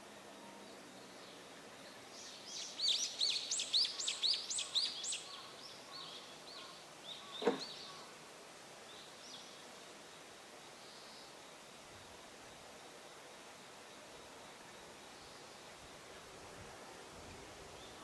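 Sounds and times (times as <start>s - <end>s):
songbird chirping: 0.0s - 11.8s
sharp knock: 7.4s - 7.7s.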